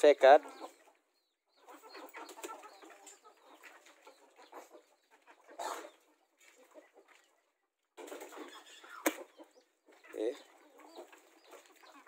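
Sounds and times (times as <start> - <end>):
chickens clucking softly: 0.0 - 12.0
loud chicken call: 5.6 - 6.0.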